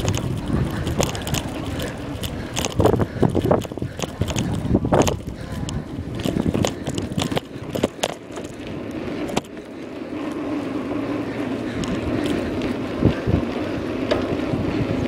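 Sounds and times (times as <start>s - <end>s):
sharp rattles and knocks: 0.0s - 9.6s
bicycle tyres rolling on pavement: 0.0s - 15.0s.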